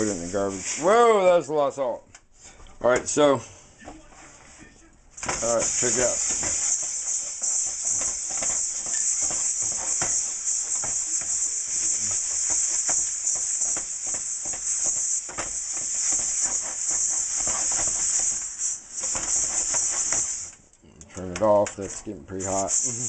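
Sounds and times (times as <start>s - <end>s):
salt scraping inside wok: 0.0s - 1.0s, 5.3s - 20.6s, 22.4s - 23.0s
gas burner hissing: 0.0s - 23.0s.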